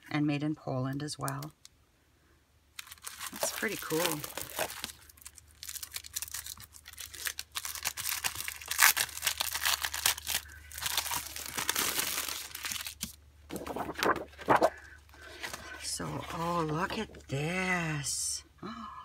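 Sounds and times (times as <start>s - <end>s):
plastic packaging crinkling: 2.7s - 16.4s
heavy paper rustling: 3.2s - 5.0s, 7.6s - 17.2s.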